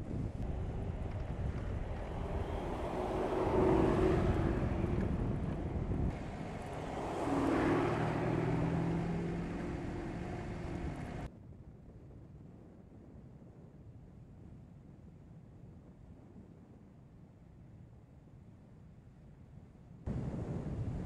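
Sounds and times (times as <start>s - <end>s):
tyre road noise: 0.0s - 11.3s
car engines driving past: 0.4s - 11.3s.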